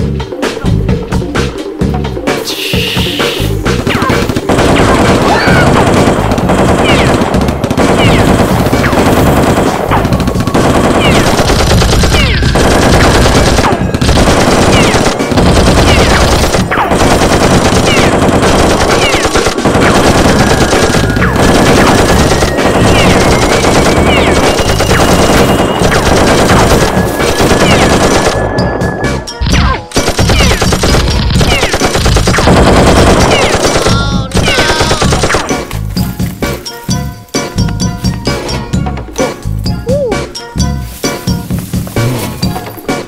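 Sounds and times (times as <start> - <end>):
automatic gunfire bursts: 3.8 - 28.4, 29.9 - 35.7.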